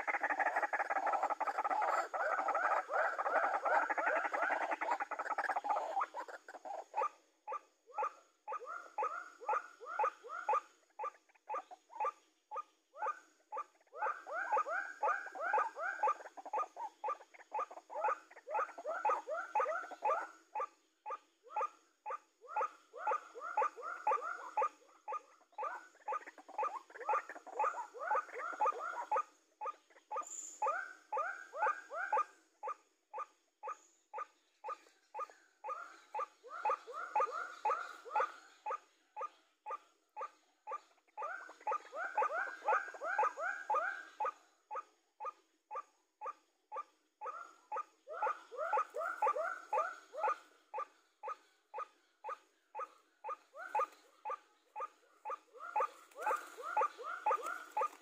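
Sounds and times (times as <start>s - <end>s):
waterhen calling: 0.0s - 6.4s, 55.6s - 58.0s.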